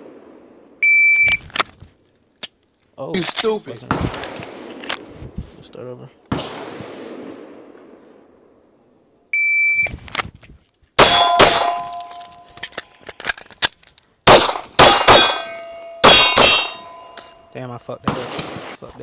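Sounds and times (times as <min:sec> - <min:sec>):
pistol shots: 0:06.3 - 0:08.0, 0:11.0 - 0:12.6, 0:14.3 - 0:17.4, 0:18.0 - 0:18.8
shot timer beep: 0:09.4 - 0:09.9
metallic ringing: 0:11.0 - 0:12.7, 0:14.8 - 0:18.0.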